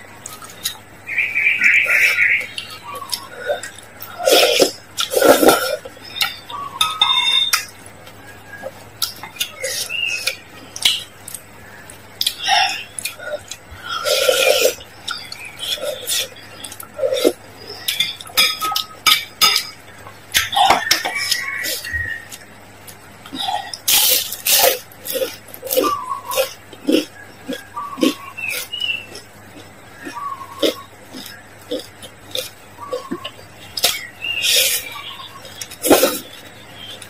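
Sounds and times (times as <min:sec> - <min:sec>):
noodles slurped and chewed: 0:21.6 - 0:36.5.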